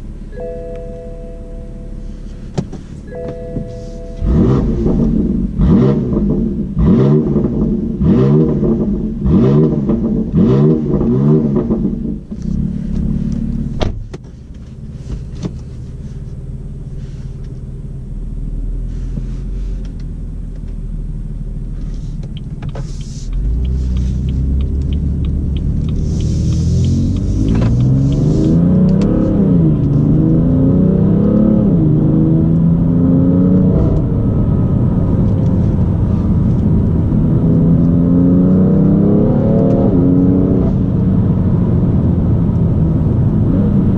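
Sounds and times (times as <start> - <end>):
car engine idling: 0.0 - 8.0, 11.8 - 30.2
car accelerating: 0.0 - 13.8, 21.0 - 43.9
car engine throttle blips: 0.0 - 43.9.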